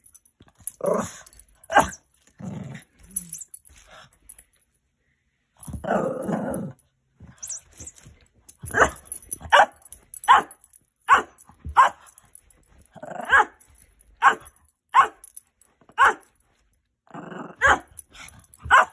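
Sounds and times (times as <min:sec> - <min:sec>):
dog barking sharply: 0:11.1 - 0:12.0, 0:16.0 - 0:16.2, 0:18.7 - 0:18.9.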